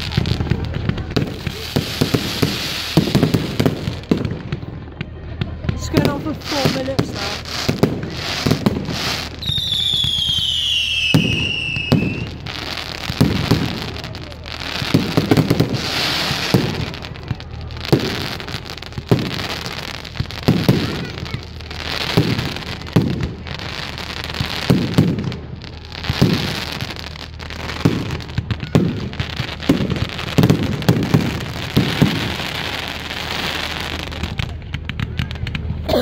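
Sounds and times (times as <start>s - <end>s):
fireworks bangs: 0.0s - 36.0s
fireworks crackling hiss: 0.0s - 36.0s.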